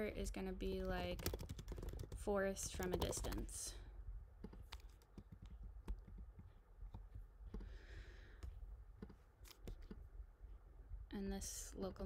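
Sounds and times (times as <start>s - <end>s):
mouse and keyboard clicks: 4.4s - 7.7s, 9.0s - 10.0s.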